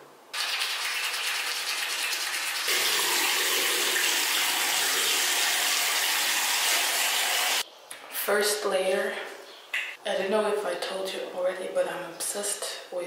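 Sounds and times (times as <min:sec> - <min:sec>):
water running: 0:00.4 - 0:07.6.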